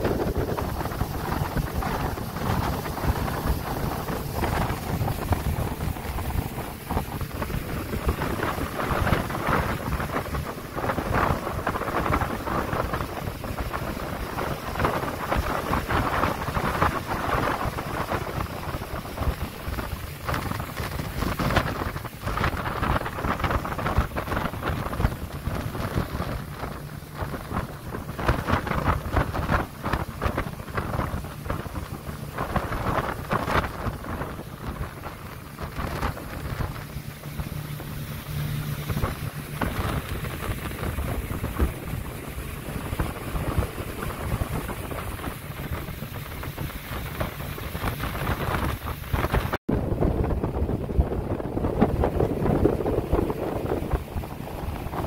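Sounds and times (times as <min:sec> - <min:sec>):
boat engines running: 0:00.0 - 0:55.0
water rushing past hull: 0:00.0 - 0:55.0
wind buffeting microphone: 0:00.0 - 0:55.0.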